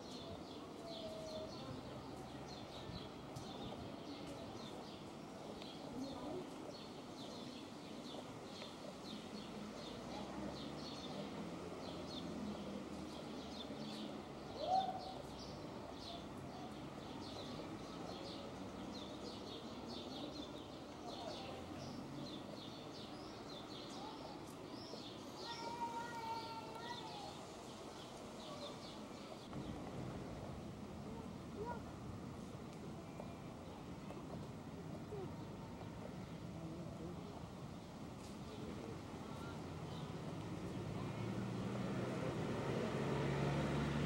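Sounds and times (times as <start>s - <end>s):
small birds chirping: 0.0s - 29.9s
low background noise: 0.0s - 44.0s.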